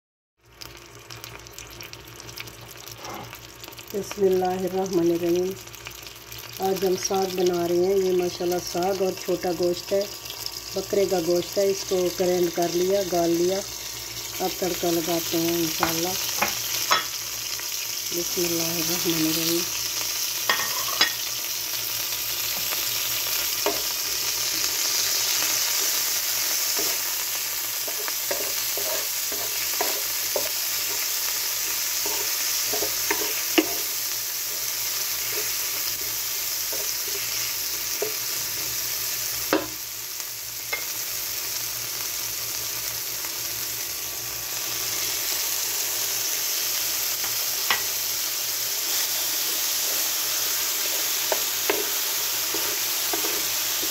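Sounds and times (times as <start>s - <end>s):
food sizzling in oil: 0.4s - 53.9s
spatula scraping a pan: 27.8s - 38.2s, 50.8s - 53.9s.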